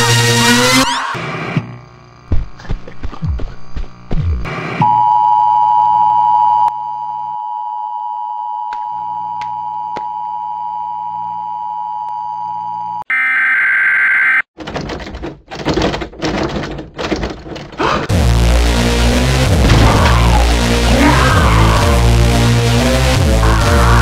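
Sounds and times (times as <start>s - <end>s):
low hum: 18.1s - 24.0s.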